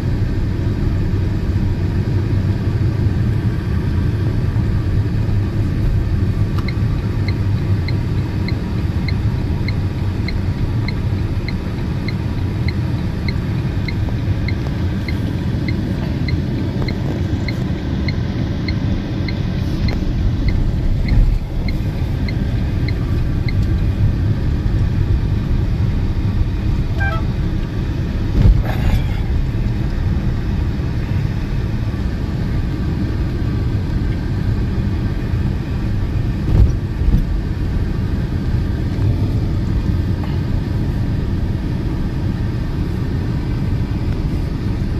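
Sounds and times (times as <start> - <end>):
road and tyre rumble: 0.0 - 44.9
turn signal ticking: 4.6 - 28.7.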